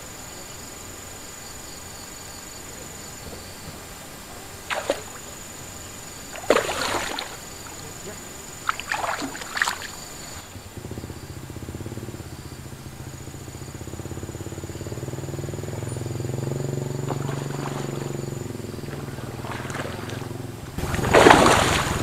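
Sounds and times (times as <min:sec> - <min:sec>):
motor engine running: 0:02.1 - 0:22.0
fish splashing in water: 0:04.4 - 0:10.5, 0:16.0 - 0:22.0.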